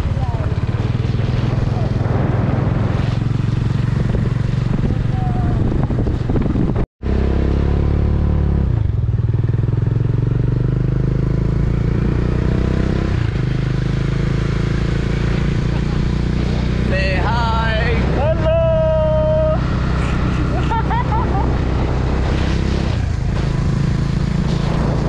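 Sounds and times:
wind rush: 0:00.0 - 0:06.8, 0:14.4 - 0:25.0
motorcycle engine running: 0:00.0 - 0:25.0.

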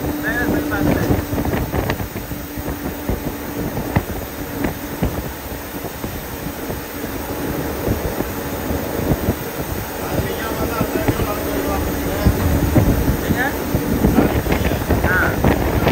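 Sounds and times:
bus engine and tyres rumbling: 0:00.0 - 0:15.9
faint steady hum: 0:00.0 - 0:15.9.

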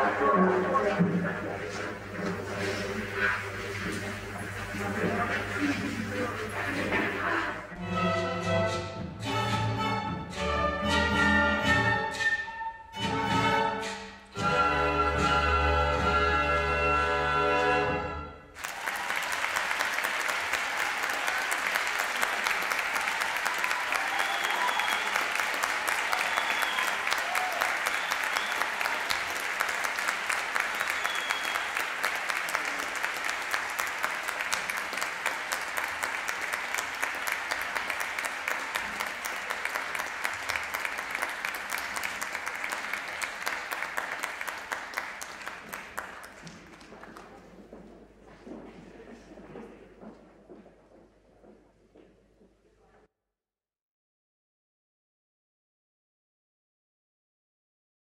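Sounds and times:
audience applauding: 0:00.0 - 0:07.8, 0:18.5 - 0:47.6.

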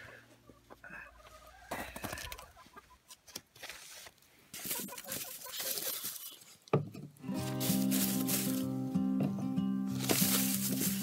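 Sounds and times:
hens clucking: 0:00.0 - 0:03.4, 0:04.6 - 0:06.2
rustling: 0:07.4 - 0:08.8, 0:09.9 - 0:11.0.

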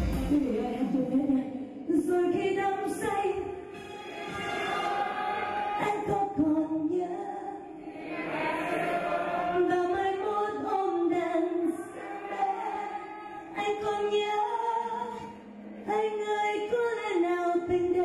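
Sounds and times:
woman singing into a microphone: 0:00.0 - 0:03.7, 0:05.8 - 0:07.8, 0:09.4 - 0:18.0
musical backing: 0:00.0 - 0:07.4.

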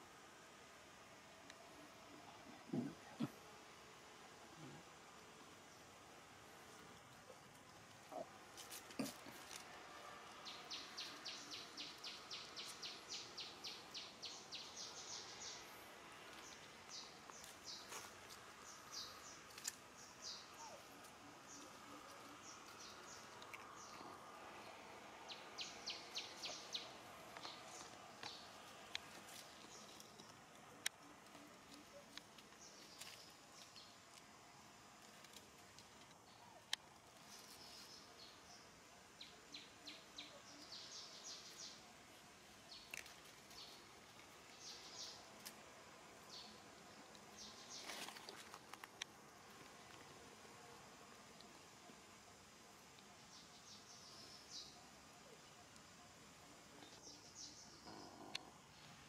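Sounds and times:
bird chirping: 0:25.3 - 0:30.4.

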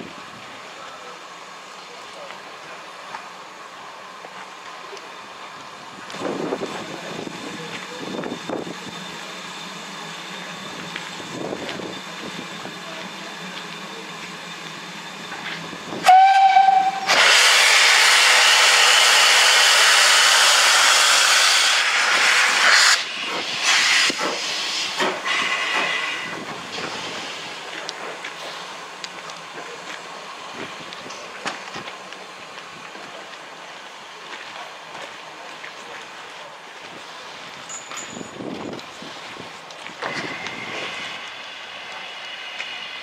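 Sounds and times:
puffs of exhaust and steam: 0:04.9 - 0:34.3, 0:38.8 - 0:43.0
loud hiss of steam: 0:06.0 - 0:29.2, 0:39.0 - 0:43.0
steam locomotive whistle: 0:16.0 - 0:23.1.

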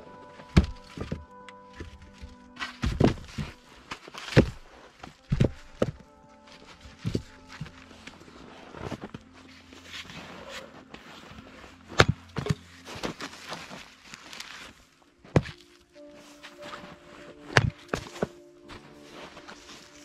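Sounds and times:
logs knocking together: 0:00.5 - 0:06.1, 0:06.9 - 0:07.8, 0:11.9 - 0:13.6
axe splitting log: 0:00.6 - 0:01.2, 0:04.2 - 0:04.6, 0:11.9 - 0:12.6.

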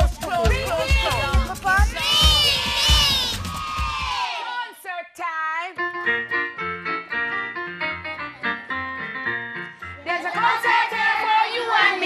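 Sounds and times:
electronic keyboard playing: 0:05.8 - 0:10.0
people singing: 0:10.0 - 0:12.0.

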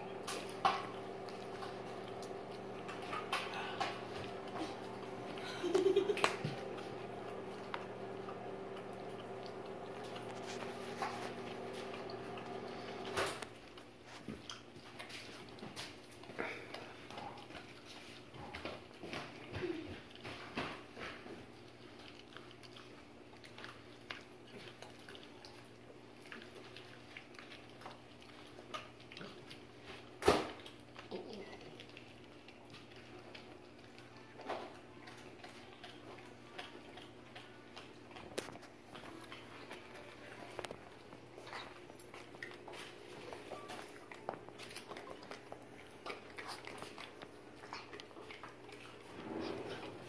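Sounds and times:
steady low hum: 0:00.0 - 0:14.1
puppy chewing a bone: 0:00.0 - 0:50.0.

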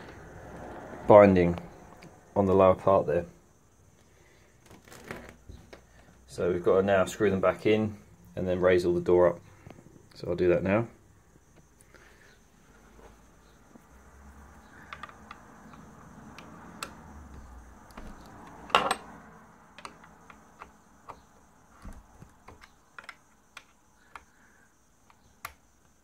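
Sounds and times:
metallic clicks and taps: 0:19.8 - 0:21.3.

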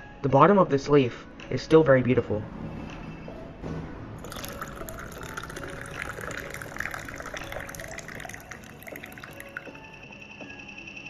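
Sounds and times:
liquid pouring into glass: 0:04.2 - 0:10.0.

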